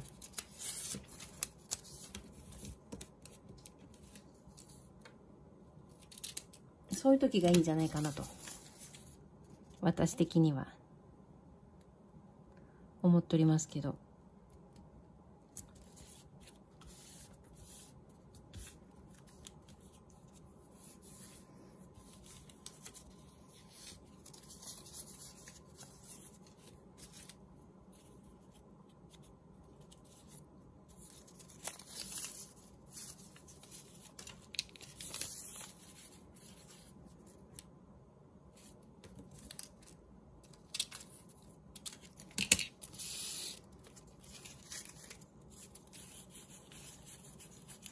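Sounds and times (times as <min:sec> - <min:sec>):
paper strips rustling: 0:00.0 - 0:04.9, 0:15.5 - 0:37.7, 0:38.6 - 0:47.9.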